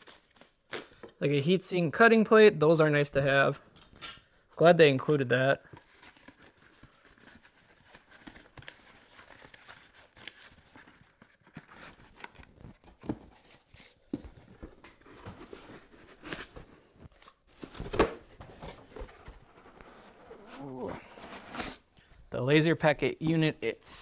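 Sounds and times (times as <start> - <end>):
paper and cardboard rustling: 5.6 - 21.9.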